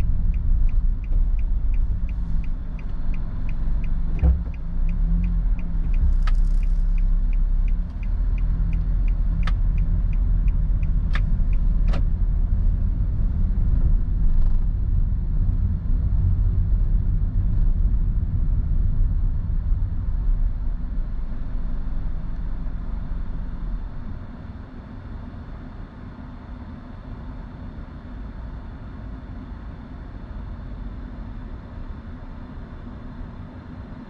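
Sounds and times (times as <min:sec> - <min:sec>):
turn signal ticking: 0:00.0 - 0:13.8
engine and road rumble: 0:00.0 - 0:34.0.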